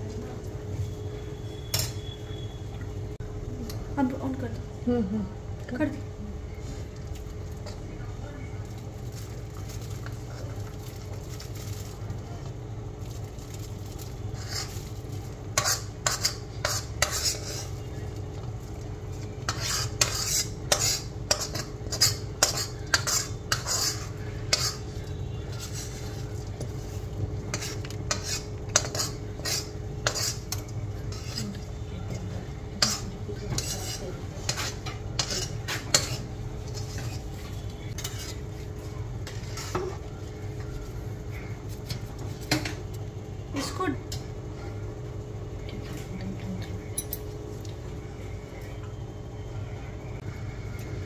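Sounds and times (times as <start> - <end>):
metal spoon scraping a pan: 1.6 - 2.2, 14.0 - 18.0, 19.4 - 31.8, 32.8 - 40.0.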